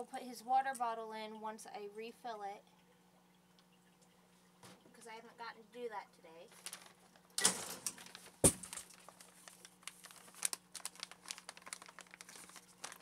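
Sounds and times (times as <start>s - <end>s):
plastic bag crinkling: 6.5s - 13.0s.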